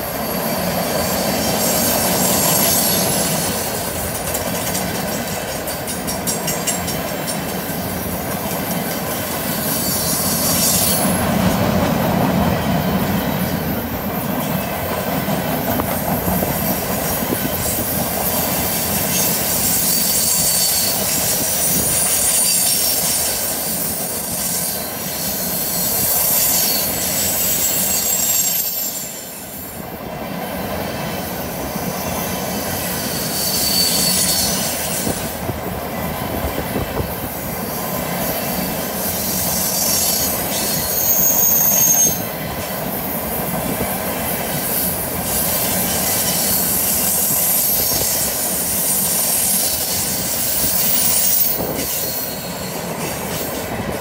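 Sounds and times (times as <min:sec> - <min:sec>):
steel wheels rumbling on rail: 0:00.0 - 0:54.0
wheel flanges squealing: 0:19.0 - 0:29.3, 0:32.8 - 0:35.3, 0:38.5 - 0:42.3.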